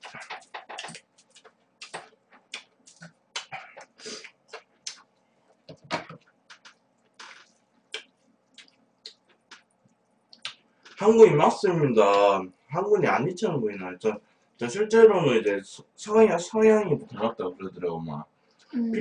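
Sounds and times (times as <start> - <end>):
wet smacking and chewing: 0.0 - 11.0.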